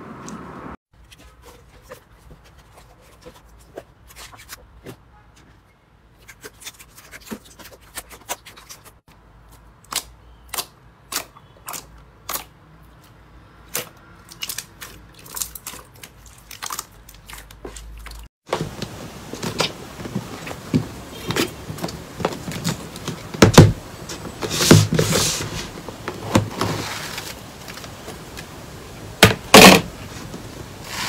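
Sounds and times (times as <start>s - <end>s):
hands squishing slime: 6.1s - 13.1s, 13.7s - 18.3s.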